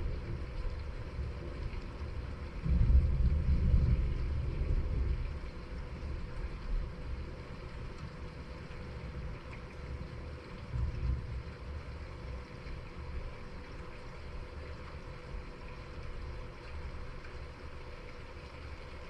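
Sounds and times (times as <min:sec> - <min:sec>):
distant thunder rumbling: 0:02.6 - 0:05.6.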